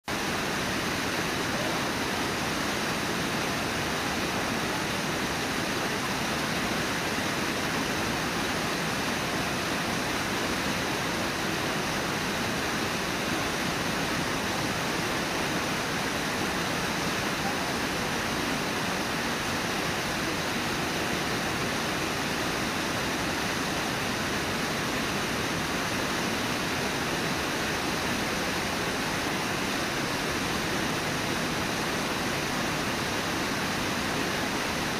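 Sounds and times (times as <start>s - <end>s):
water pouring over falls: 0.1s - 34.9s.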